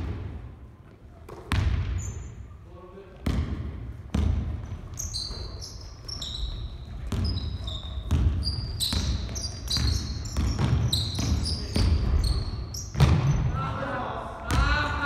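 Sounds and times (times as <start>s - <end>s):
sneakers squeaking: 0.8s - 2.6s, 3.2s - 13.6s
basketball bouncing on wooden floor: 1.3s - 2.0s, 3.2s - 5.5s, 7.0s - 13.4s.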